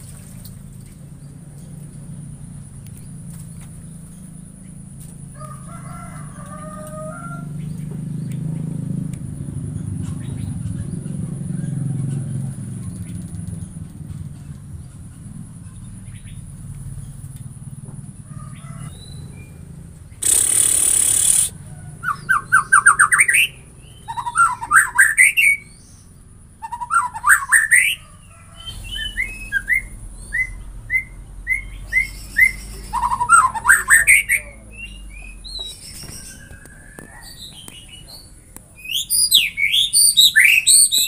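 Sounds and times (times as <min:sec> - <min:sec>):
bird singing: 0:14.3 - 0:41.0
harsh hiss: 0:20.2 - 0:21.5.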